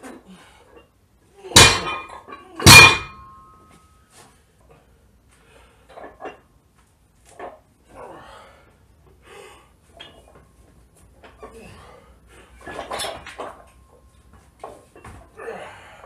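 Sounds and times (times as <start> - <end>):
dumbbell crashing down: 1.6 - 3.5
iron plates ringing: 1.6 - 3.7.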